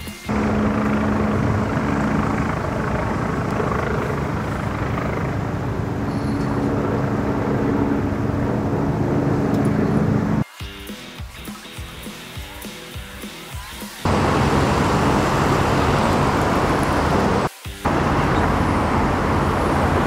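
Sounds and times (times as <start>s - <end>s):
low even hum: 0.3s - 10.4s
loud steady rushing noise: 0.3s - 10.5s, 14.0s - 20.0s.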